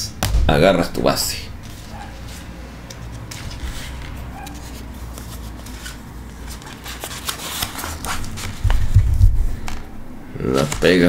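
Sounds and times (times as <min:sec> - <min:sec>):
dull thump: 0:00.2 - 0:00.9
vinyl sheet rustling and crackling: 0:01.6 - 0:11.0.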